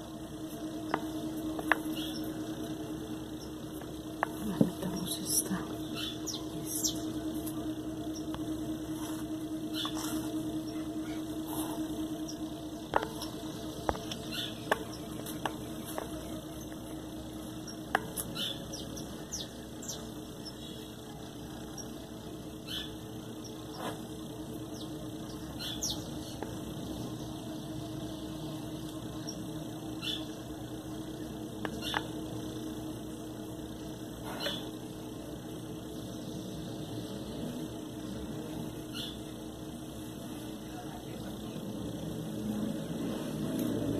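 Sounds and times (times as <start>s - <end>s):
steady low hum: 0.0s - 43.9s
sharp taps: 12.9s - 16.3s.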